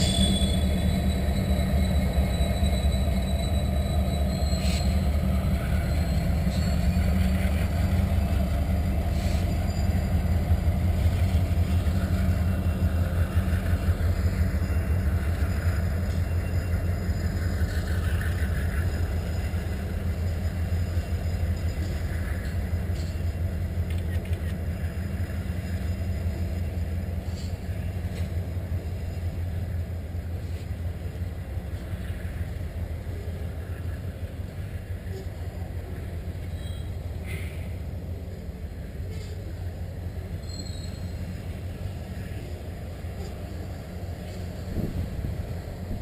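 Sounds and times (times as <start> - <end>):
high wheel squeal: 0.0 - 23.3, 36.4 - 37.8, 40.3 - 44.8
train wheels rumbling on rail: 0.0 - 46.0.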